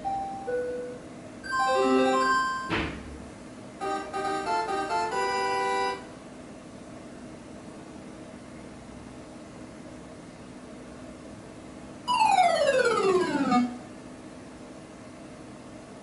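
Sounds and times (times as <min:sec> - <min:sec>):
electronic keyboard jingle: 0:00.0 - 0:02.8, 0:12.1 - 0:13.8.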